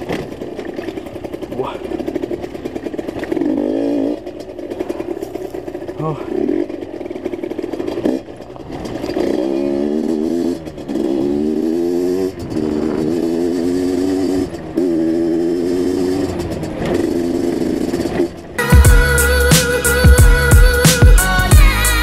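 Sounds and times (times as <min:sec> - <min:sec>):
dirt bike engine pulling hard: 0:00.0 - 0:22.0.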